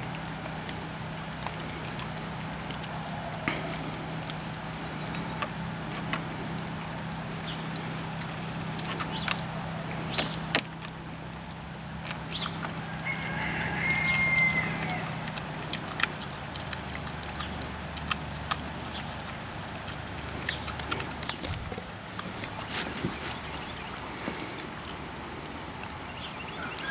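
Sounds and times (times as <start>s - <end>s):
dog chewing bone: 0.0s - 25.6s
steady low hum: 0.0s - 26.8s
bird call: 26.2s - 26.9s.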